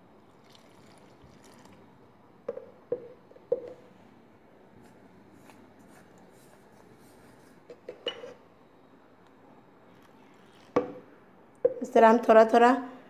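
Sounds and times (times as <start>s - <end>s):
hands rubbing dough: 4.8s - 7.7s.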